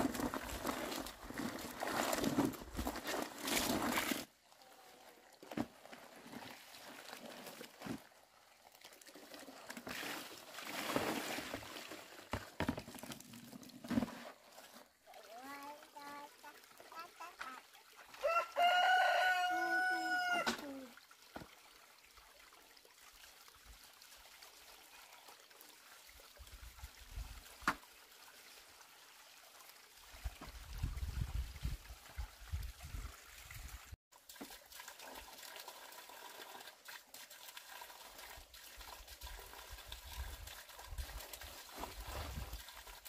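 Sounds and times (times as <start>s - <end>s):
rooster crowing: 18.2s - 20.5s.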